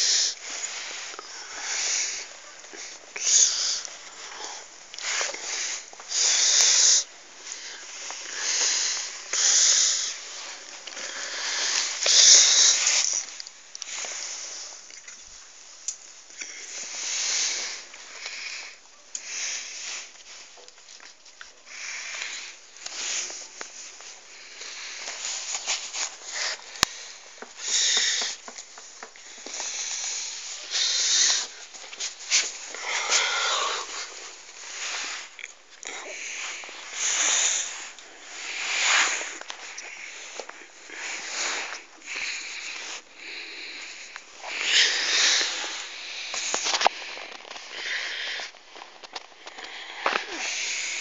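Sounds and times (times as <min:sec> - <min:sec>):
puppy sniffing and breathing: 0:16.7 - 0:35.4.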